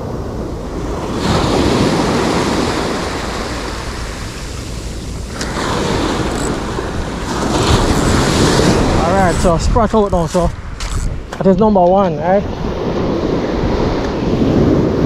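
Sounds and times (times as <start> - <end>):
small surf waves breaking: 0.0 - 11.5.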